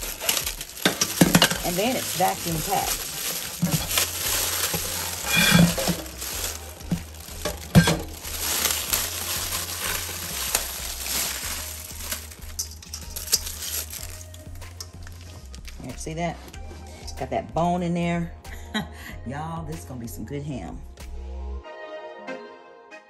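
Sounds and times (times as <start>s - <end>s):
foil wrapper crinkling and tearing: 0.0s - 15.9s
plastic packaging crackling: 0.0s - 15.9s.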